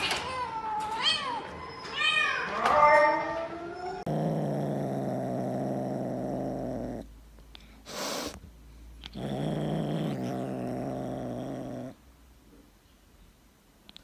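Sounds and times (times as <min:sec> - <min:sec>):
kitten throaty rumble: 0:04.0 - 0:07.1, 0:09.0 - 0:12.0.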